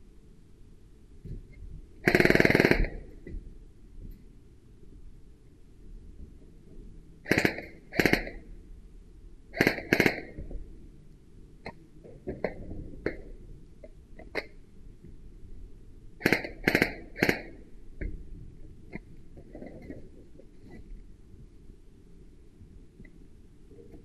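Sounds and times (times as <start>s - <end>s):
airsoft gun shots: 2.1s - 3.0s, 7.3s - 8.4s, 9.6s - 10.4s, 16.2s - 17.6s
faint clicks and knocks: 11.6s - 15.3s, 17.9s - 21.8s, 22.6s - 24.0s.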